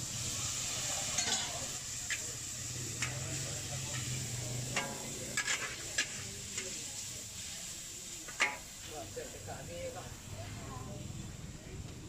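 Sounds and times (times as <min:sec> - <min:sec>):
noodles sizzling in a wok: 0:00.0 - 0:12.0
metal spatula scraping a wok: 0:00.6 - 0:02.2, 0:02.9 - 0:07.6.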